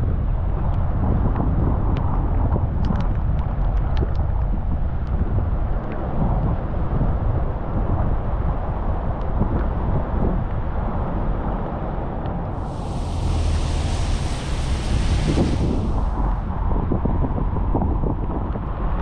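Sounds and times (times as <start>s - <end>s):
car road and engine rumble: 0.0s - 19.0s
tyre hiss on wet road: 12.6s - 16.7s.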